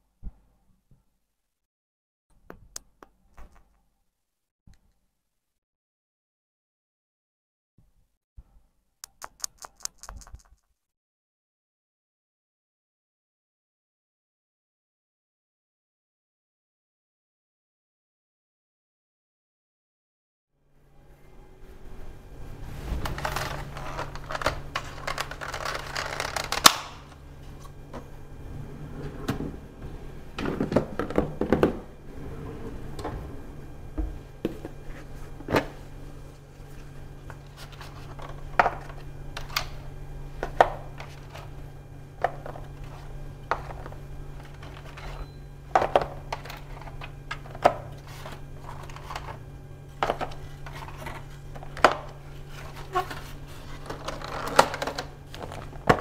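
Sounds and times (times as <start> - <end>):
steady low hum: 20.6 - 56.0
plastic rustling: 22.6 - 26.7.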